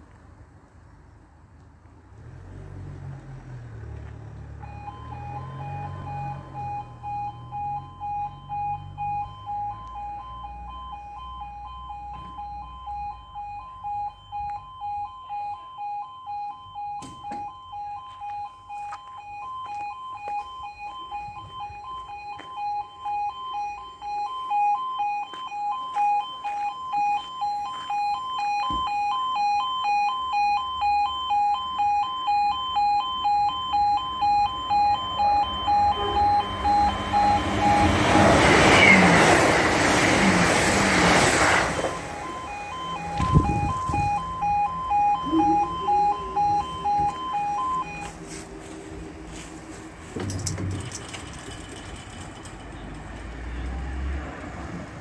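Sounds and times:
level crossing two-tone alarm: 4.6 - 51.5.

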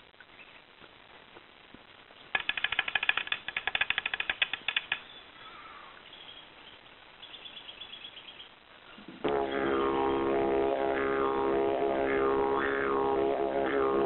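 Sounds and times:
rapid dry rattle of clicks: 2.3 - 5.1.

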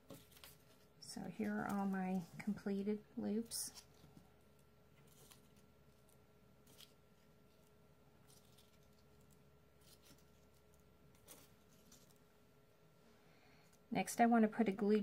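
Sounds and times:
faint paper rustles: 0.0 - 2.6, 3.4 - 12.3.

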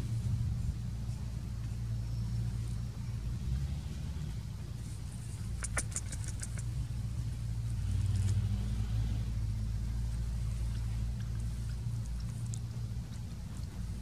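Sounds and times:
truck engine rumbling: 0.0 - 14.0
sharp clicks: 5.5 - 6.7.

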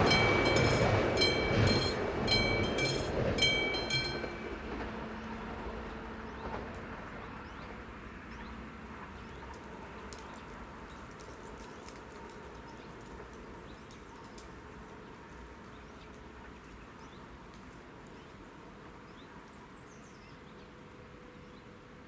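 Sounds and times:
birds chirping: 0.0 - 4.6
train passing: 0.0 - 22.0.

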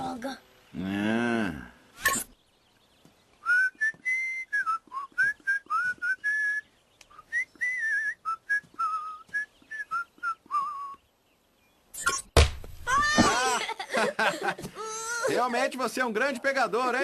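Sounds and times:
person whistling a melody: 3.4 - 6.6, 7.2 - 11.0.

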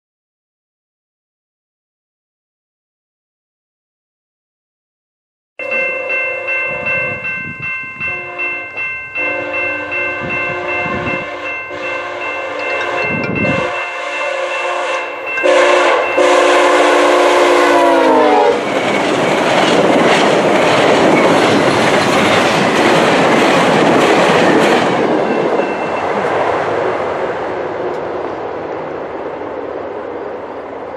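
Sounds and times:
train rushing past: 5.7 - 30.9
train horn: 8.0 - 18.8
wheels clicking over rail joints: 18.6 - 26.6.

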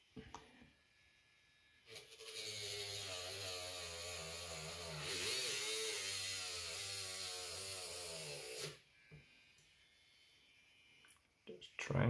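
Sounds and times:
rotary grinder whining: 1.8 - 11.1.

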